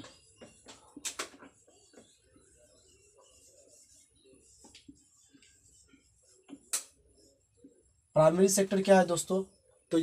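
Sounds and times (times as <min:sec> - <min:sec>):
marker pen scratching on whiteboard: 0:00.0 - 0:07.9.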